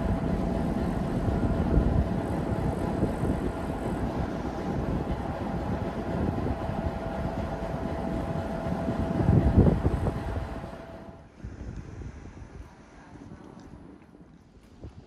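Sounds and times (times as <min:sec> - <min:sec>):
diesel locomotive idling: 0:00.0 - 0:11.3
wind buffeting microphone: 0:00.0 - 0:15.0.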